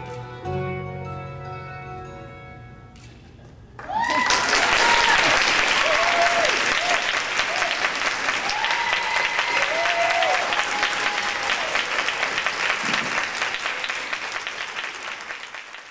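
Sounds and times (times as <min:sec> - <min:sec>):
audience applauding: 0:03.8 - 0:15.9.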